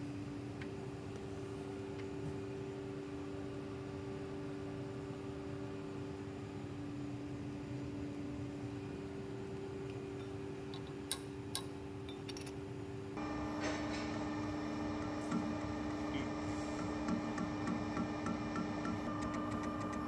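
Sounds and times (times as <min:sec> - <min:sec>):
steady machine hum: 0:00.0 - 0:20.0
metal lathe running: 0:13.2 - 0:20.0.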